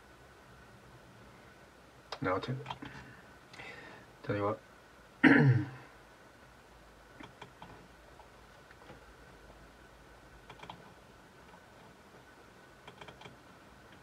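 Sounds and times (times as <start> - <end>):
faint steady whine: 0.0 - 14.0
mouse and keyboard clicks: 7.2 - 7.8, 10.5 - 10.9, 12.8 - 13.4.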